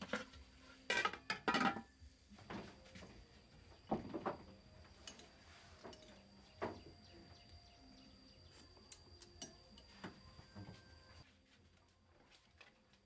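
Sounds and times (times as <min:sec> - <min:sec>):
metal spoon clinking ceramic bowl: 0:08.9 - 0:09.9.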